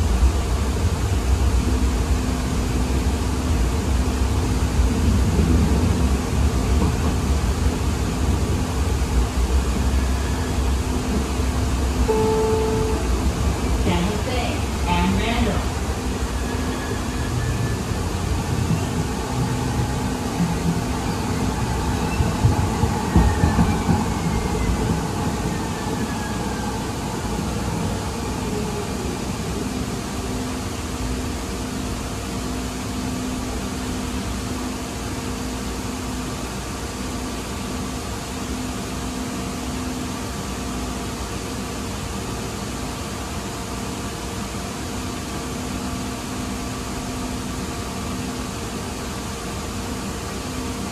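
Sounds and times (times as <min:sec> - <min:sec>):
rumble of wheels on rail: 0:00.0 - 0:50.9
air conditioning hum: 0:10.6 - 0:16.3
faint falling whine: 0:12.0 - 0:30.7.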